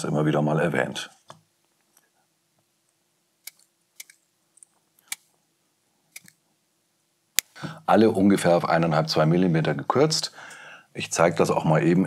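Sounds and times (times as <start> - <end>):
side cutters snipping pins: 3.4 - 4.2.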